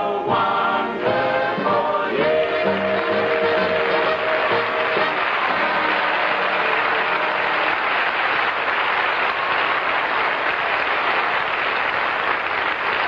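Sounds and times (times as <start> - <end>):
orchestra playing: 1.0 - 8.1
studio audience applauding: 2.6 - 13.0.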